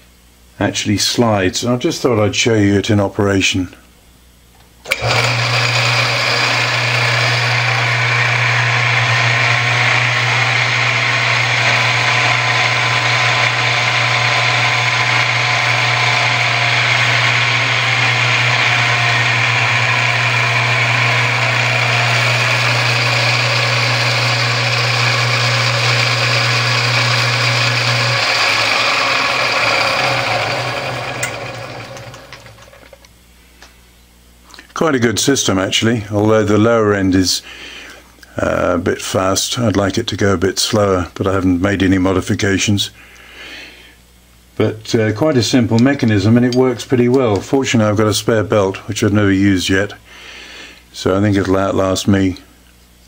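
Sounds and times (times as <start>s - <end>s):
belt drive whirring: 4.8s - 33.0s
lathe motor humming: 4.9s - 33.0s.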